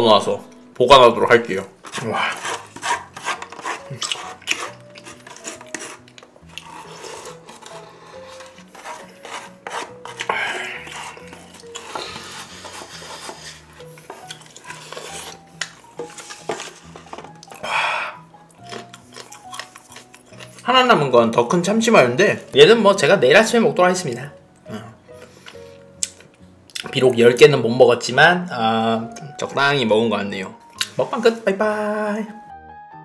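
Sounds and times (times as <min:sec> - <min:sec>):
slurping broth: 0:01.9 - 0:20.6
chewing: 0:03.8 - 0:07.8, 0:14.1 - 0:15.8, 0:18.5 - 0:20.6.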